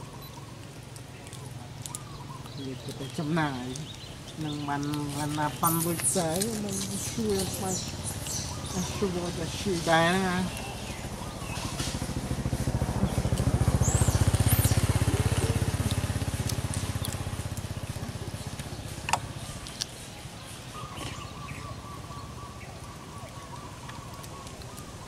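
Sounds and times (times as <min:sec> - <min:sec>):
small engine passing: 0:00.0 - 0:25.0
bird chirps: 0:01.2 - 0:12.0, 0:18.3 - 0:25.0.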